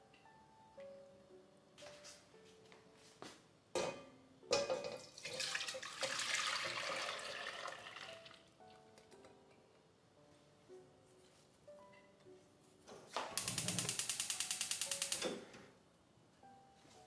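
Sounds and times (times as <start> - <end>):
liquid pouring into metal pot: 4.9 - 8.4.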